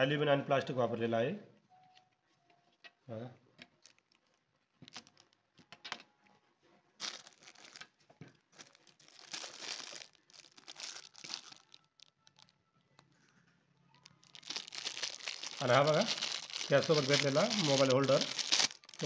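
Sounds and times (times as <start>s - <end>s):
plastic bag crinkling: 3.8s - 5.5s, 7.0s - 13.3s, 13.9s - 19.0s.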